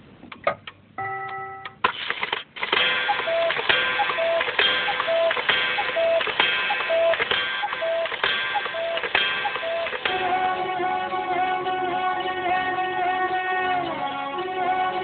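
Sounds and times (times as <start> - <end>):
ticking struck ringing notes: 3.0 - 12.4.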